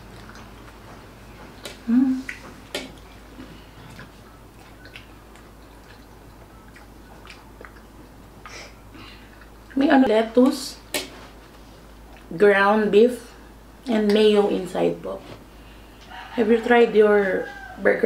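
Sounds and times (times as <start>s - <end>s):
wet chewing mouth clicks: 0.0s - 9.9s, 12.1s - 12.3s
person humming briefly: 1.8s - 2.4s.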